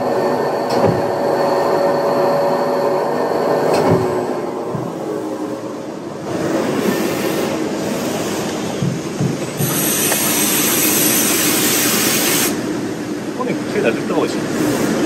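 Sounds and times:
lathe machine noise: 9.4 - 15.0
air blow gun hissing: 9.6 - 12.6.

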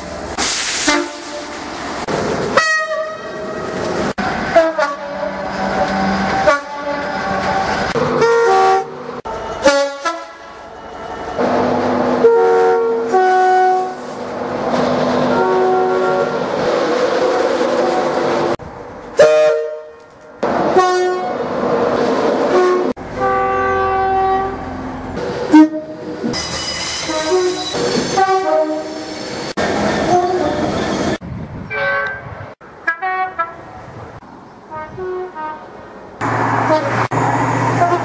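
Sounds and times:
train horn blasts: 0.8 - 1.6, 2.6 - 3.5, 4.5 - 5.4, 6.1 - 7.5, 8.1 - 11.0, 12.1 - 14.1, 15.3 - 16.4, 19.2 - 20.1, 20.7 - 21.4, 22.5 - 24.6, 25.5 - 26.0, 27.0 - 29.0, 31.7 - 33.8, 34.7 - 35.7, 36.6 - 37.1, 37.7 - 38.0.

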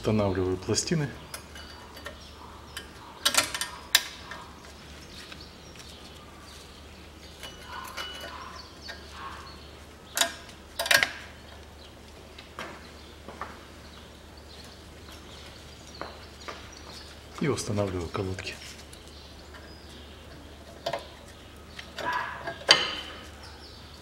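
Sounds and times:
metallic clinks of brake pads: 1.2 - 4.4, 7.3 - 9.3.

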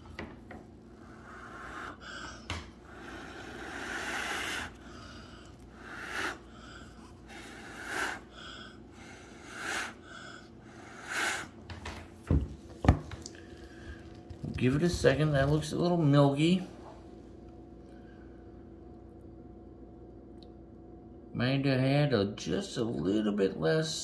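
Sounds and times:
person blowing by mouth: 1.0 - 5.1, 5.8 - 10.1, 10.8 - 11.6.

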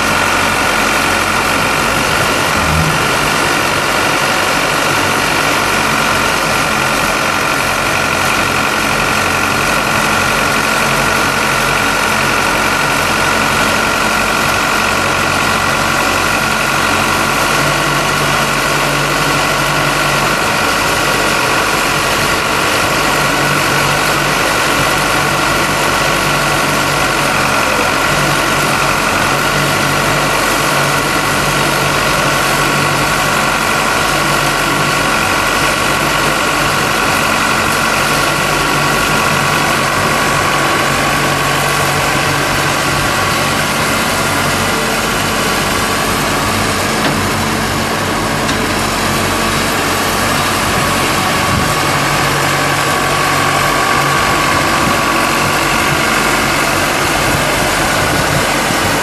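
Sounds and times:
diesel engine running: 0.0 - 59.0
high-pitched hydraulic whine: 2.0 - 4.6.

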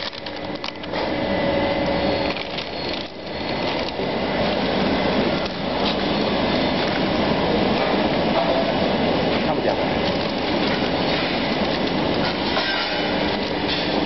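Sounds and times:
conveyor roaster running: 0.0 - 14.0.

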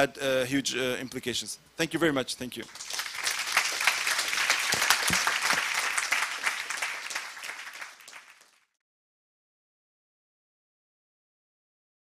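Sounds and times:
audience applauding: 2.7 - 8.8.

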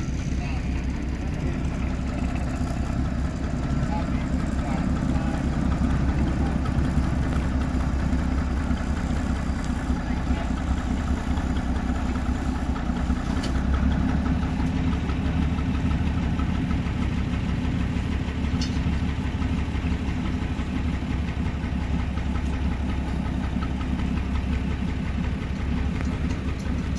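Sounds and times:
diesel locomotive engine idling: 0.0 - 26.9.

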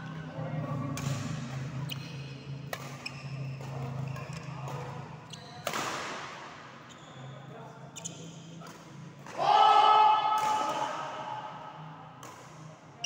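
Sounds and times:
footfalls and shoe squeaks: 5.3 - 5.9.

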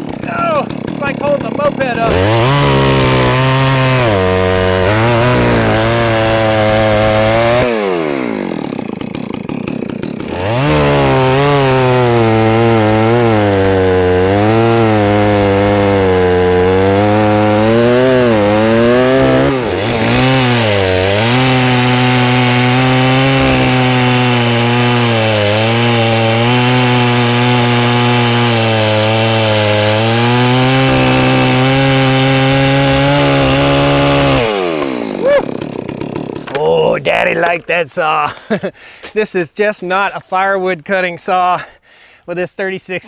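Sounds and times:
chainsaw cutting log: 0.0 - 37.7
chainsaw engine falling to idle: 7.9 - 10.3, 34.8 - 36.6.

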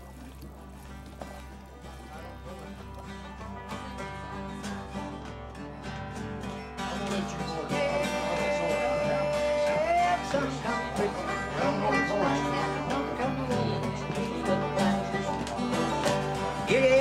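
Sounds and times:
bluegrass music with acoustic guitar: 0.0 - 17.0.

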